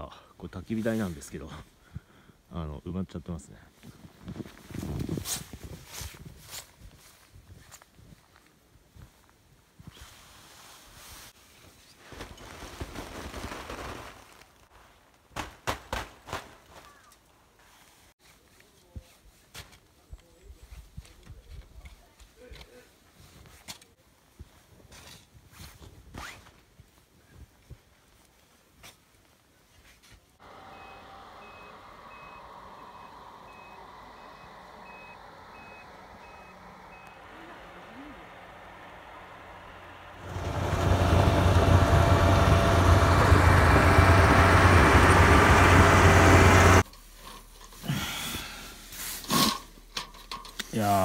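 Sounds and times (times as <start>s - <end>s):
snow sliding down tent canvas: 9.9s - 15.1s, 25.6s - 27.0s
snowplow engine running: 30.4s - 46.8s
reversing alarm beeping: 30.7s - 37.7s.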